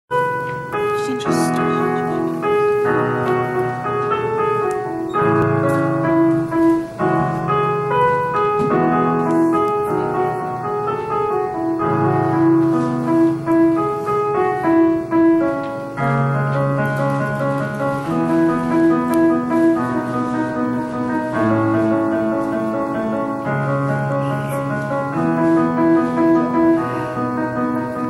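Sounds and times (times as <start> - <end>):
electronic keyboard piano melody: 0.1 - 28.0.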